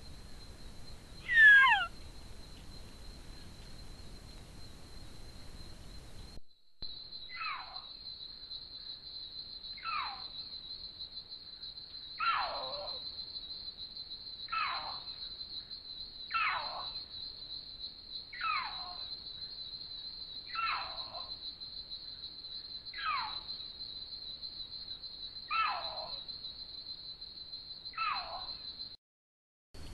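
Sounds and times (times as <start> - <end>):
panther yowling: 1.3 - 1.9.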